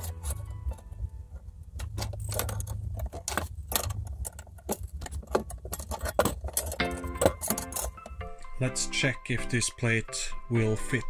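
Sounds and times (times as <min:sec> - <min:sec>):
low steady hum: 0:00.0 - 0:08.6
metal clinks and clicks: 0:01.7 - 0:08.3.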